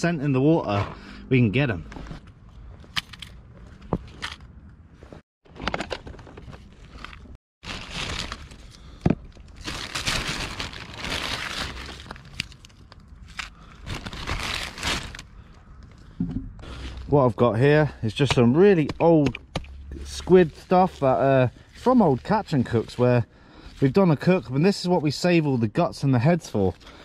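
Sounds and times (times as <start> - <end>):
plastic bag crinkling: 7.6 - 15.3.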